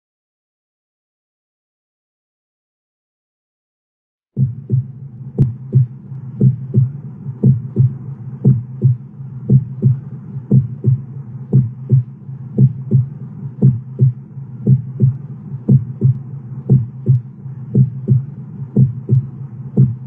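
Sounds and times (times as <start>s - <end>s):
heartbeat double thump: 4.4s - 20.0s
low hum: 4.4s - 20.0s.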